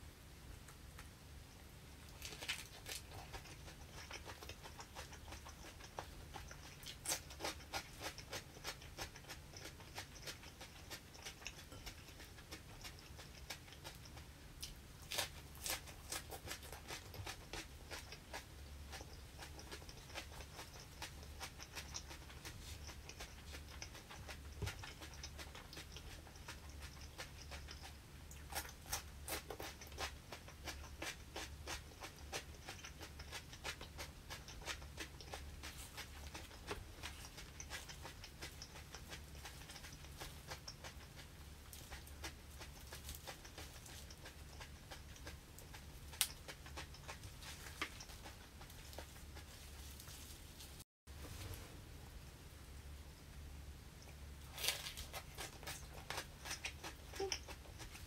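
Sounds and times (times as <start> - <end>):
low steady hum: 0.0 - 58.0
person chewing leafy greens: 0.6 - 50.8, 54.0 - 58.0.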